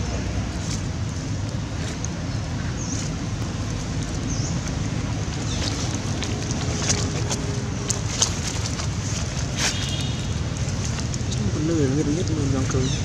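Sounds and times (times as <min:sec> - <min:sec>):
monkey gnawing coconut husk: 0:00.0 - 0:13.0
wind rumble on microphone: 0:00.0 - 0:13.0.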